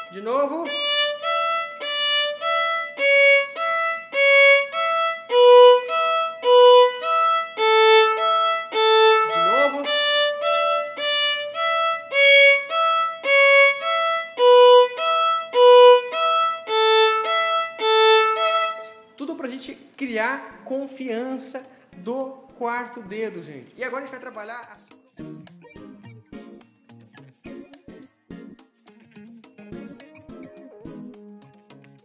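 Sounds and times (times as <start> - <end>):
violin bowed notes: 0.0 - 19.2.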